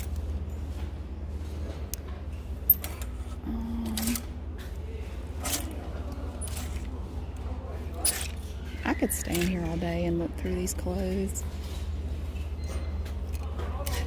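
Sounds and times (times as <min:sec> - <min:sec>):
steady low hum: 0:00.0 - 0:14.0
plastic hangers clicking on rack: 0:08.0 - 0:10.6.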